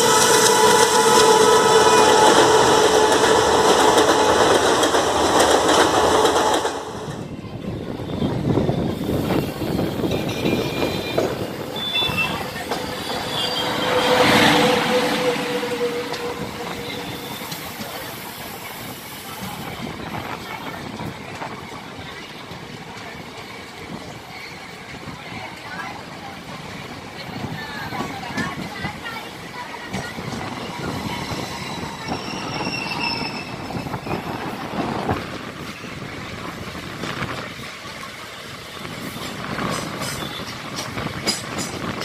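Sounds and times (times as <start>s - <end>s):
train horn: 0.0s - 4.8s, 10.6s - 17.8s
passing train coaches rumbling: 0.0s - 42.0s
train rolling noise: 0.0s - 42.0s.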